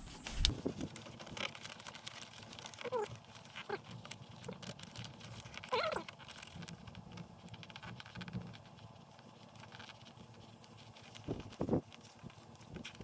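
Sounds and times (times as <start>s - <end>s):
paper rustling and crinkling: 0.0s - 13.0s
pencil tapping and scratching: 0.2s - 13.0s.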